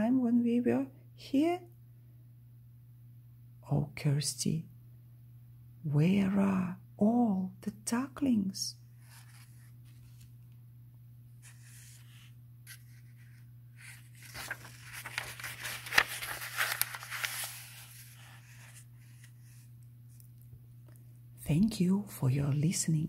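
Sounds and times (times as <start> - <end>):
faint low hum: 0.0 - 23.0
paper page rustling: 9.0 - 10.5, 11.4 - 20.3
page flicking: 12.7 - 18.2.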